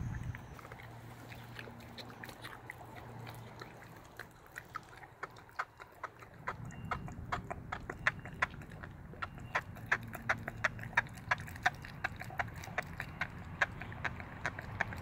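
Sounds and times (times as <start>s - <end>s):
low rumble: 0.0s - 0.6s
puppy crunching on bone: 0.0s - 15.0s.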